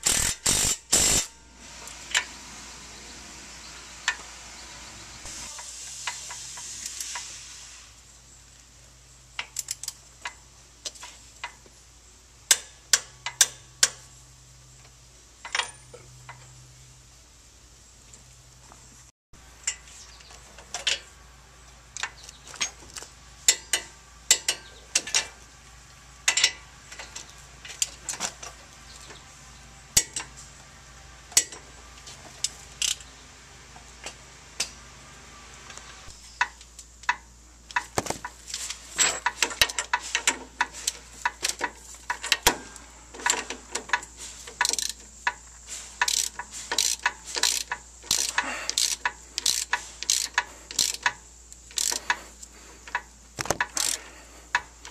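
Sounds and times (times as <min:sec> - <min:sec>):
hand ratchet clicking: 0:00.0 - 0:01.3, 0:43.2 - 0:54.9.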